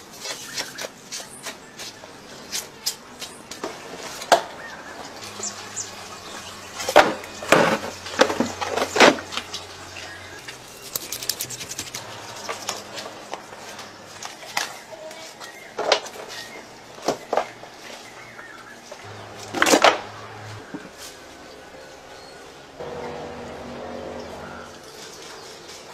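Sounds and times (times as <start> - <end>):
scraping and rustling: 10.5 - 18.0.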